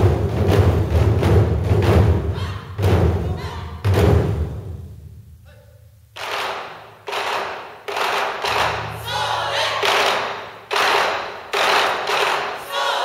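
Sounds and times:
taiko drums struck in unison: 0:00.0 - 0:05.2
players shouting: 0:08.9 - 0:09.9, 0:12.6 - 0:13.0.

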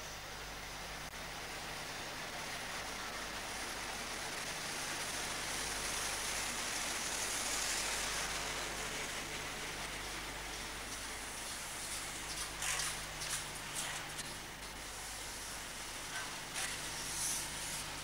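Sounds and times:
train passing at speed: 0:01.8 - 0:11.7.

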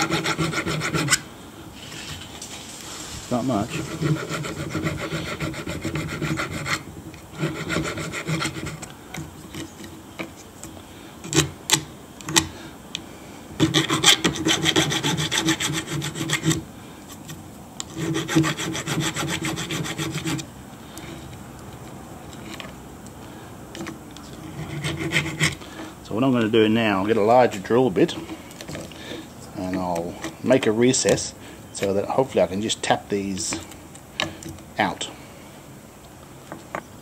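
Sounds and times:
hand file rasping on steel: 0:00.0 - 0:01.2, 0:03.7 - 0:08.9, 0:13.6 - 0:16.6, 0:17.8 - 0:20.4, 0:24.5 - 0:25.6.

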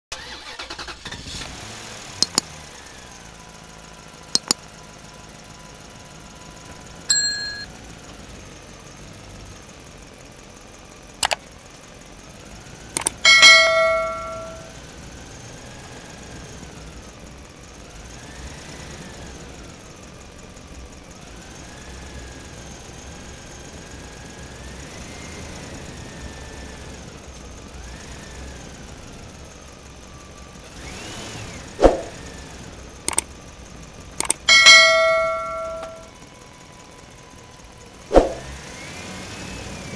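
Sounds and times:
tractor diesel engine running: 0:00.1 - 0:39.9
sharp double clicks: 0:02.2 - 0:02.5, 0:04.4 - 0:04.6, 0:13.0 - 0:14.6, 0:34.2 - 0:36.0.

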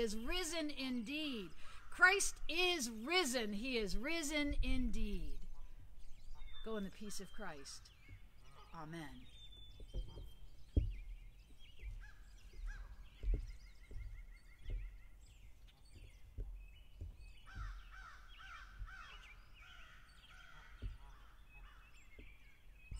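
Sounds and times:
birds calling and chirping: 0:00.0 - 0:22.9
thumps on microphone: 0:09.7 - 0:15.0, 0:20.8 - 0:21.3.

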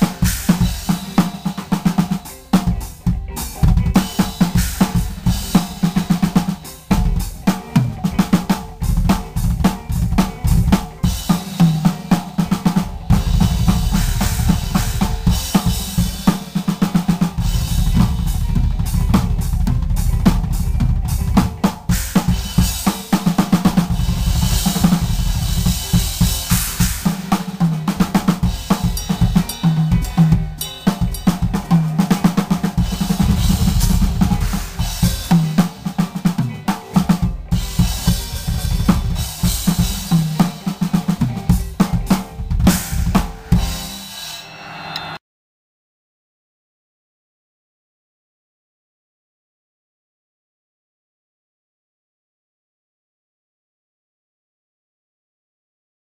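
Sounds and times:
drum kit playing: 0:00.0 - 0:45.2
cymbals ringing: 0:28.4 - 0:32.0, 0:32.6 - 0:36.0, 0:42.8 - 0:45.2.

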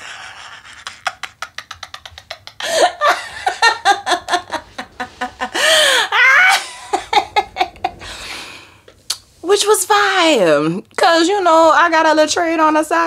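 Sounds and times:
woman laughing hard: 0:00.0 - 0:08.2.

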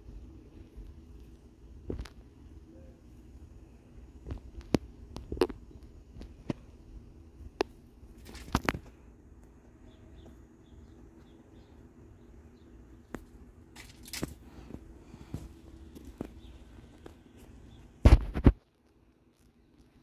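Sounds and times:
kittens play-fighting on concrete: 0:00.0 - 0:20.0
faint bird chirps: 0:09.7 - 0:13.1.

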